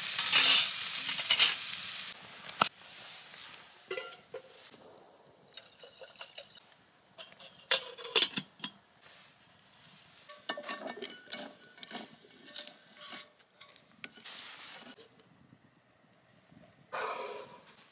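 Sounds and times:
metal cookware clinking on grill: 0:03.9 - 0:04.4, 0:05.5 - 0:06.6, 0:07.2 - 0:08.8, 0:10.3 - 0:14.2
spatula scraping frying pan: 0:10.3 - 0:15.0.

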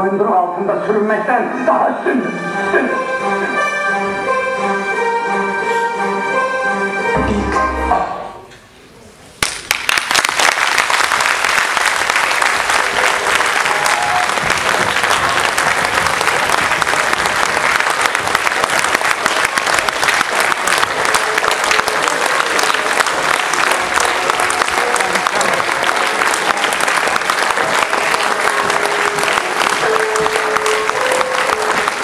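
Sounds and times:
audience clapping: 0:09.4 - 0:32.0.

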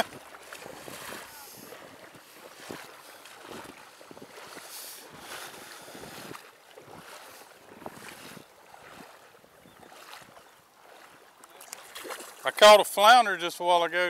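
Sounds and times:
wind buffeting microphone: 0:00.0 - 0:10.4
water splashing around legs: 0:00.0 - 0:12.8.

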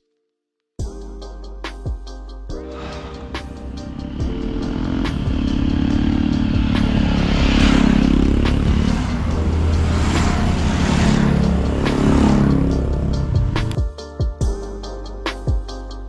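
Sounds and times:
vehicle engine running: 0:02.9 - 0:13.8.

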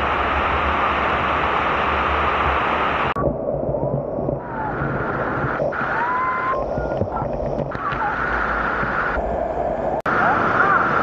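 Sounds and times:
rushing falling water: 0:00.0 - 0:11.0.

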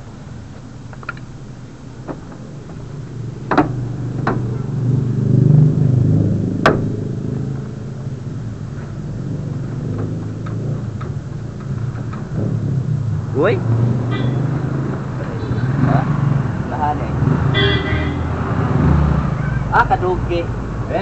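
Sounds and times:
vehicle engine rumble: 0:00.0 - 0:21.0
sharp clicks and knocks: 0:00.9 - 0:01.3, 0:03.5 - 0:04.5, 0:06.6 - 0:07.0, 0:09.9 - 0:12.6.

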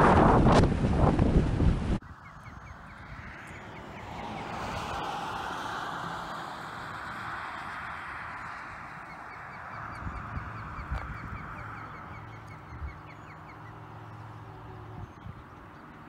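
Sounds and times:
wind gusts thumping microphone: 0:00.0 - 0:13.1
wind: 0:00.0 - 0:16.0
bird chirping: 0:02.1 - 0:04.8, 0:08.3 - 0:16.0.

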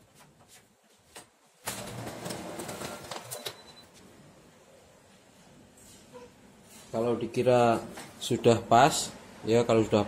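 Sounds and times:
photocopier whirring and clicking: 0:01.6 - 0:03.7.

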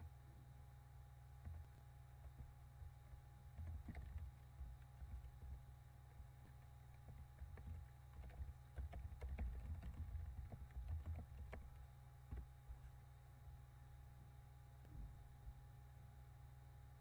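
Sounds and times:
steady low hum: 0:00.0 - 0:17.0
typing on computer keyboard: 0:01.4 - 0:05.6, 0:06.4 - 0:13.0.

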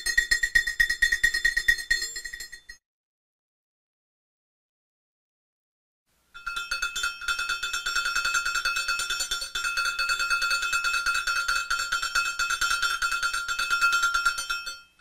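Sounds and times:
metal bell clanking: 0:06.4 - 0:15.0.

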